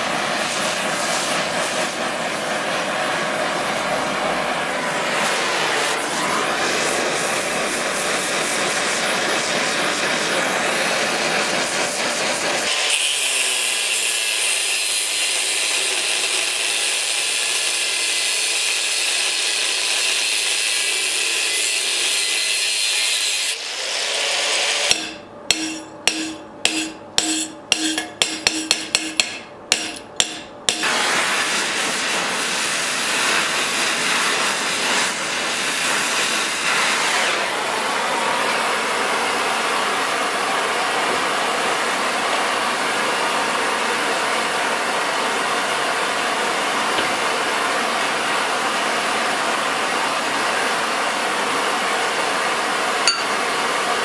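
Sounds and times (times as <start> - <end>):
torch flame hissing: 0.0 - 13.0, 30.8 - 40.8
angle grinder grinding steel: 20.1 - 30.9, 53.1 - 53.4
hammer blows on metal: 24.9 - 31.0, 53.1 - 53.4.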